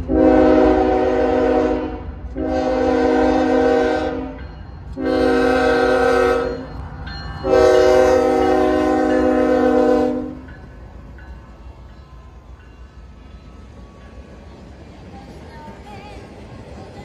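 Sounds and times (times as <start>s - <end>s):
locomotive air horn blasts: 0.0s - 4.4s, 5.0s - 6.7s, 7.4s - 10.5s.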